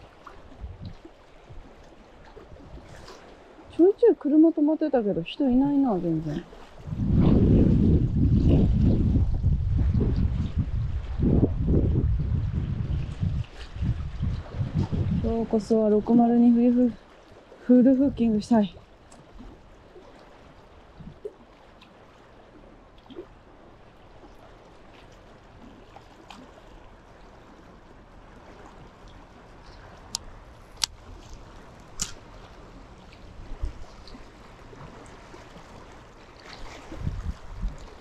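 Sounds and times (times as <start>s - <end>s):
wind buffeting microphone: 0.0s - 4.2s, 5.0s - 17.0s, 17.7s - 21.4s, 28.4s - 38.0s
waves lapping at shore: 0.0s - 38.0s.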